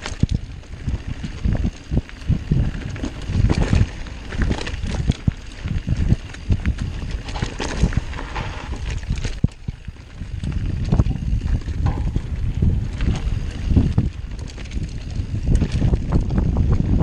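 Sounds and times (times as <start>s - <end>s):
bike rattling and knocking: 0.0s - 17.0s
tyres rumbling on dirt: 0.0s - 17.0s.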